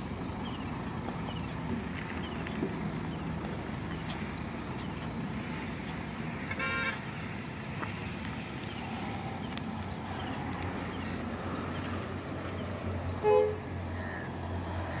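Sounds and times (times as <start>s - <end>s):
truck diesel engine running: 0.0s - 14.7s
truck horn toots: 6.4s - 7.0s, 13.2s - 13.7s.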